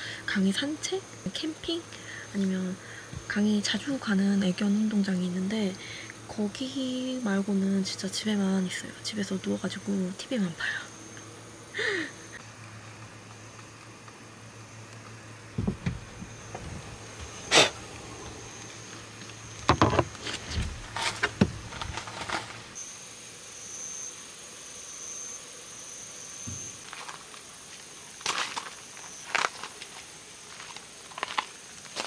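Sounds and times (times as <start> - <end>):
night insects trilling: 0.0 - 32.0
low hum: 6.3 - 22.9
things knocking inside a car: 15.6 - 17.3.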